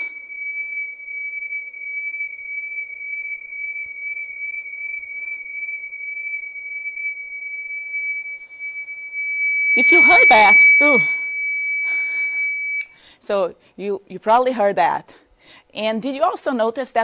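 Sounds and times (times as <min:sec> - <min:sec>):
whirling electronic siren beep: 0:00.0 - 0:12.9.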